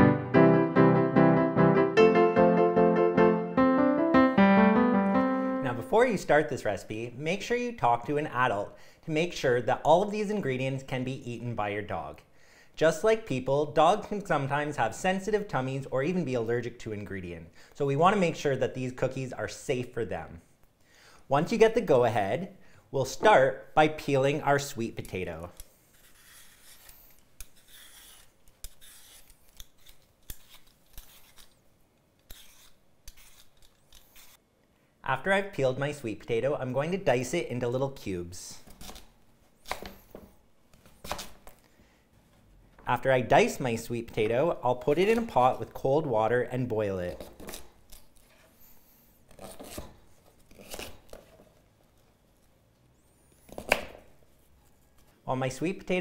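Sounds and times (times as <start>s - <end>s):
vegetable peeler scraping: 25.5s - 31.6s, 32.2s - 34.4s, 47.1s - 51.2s.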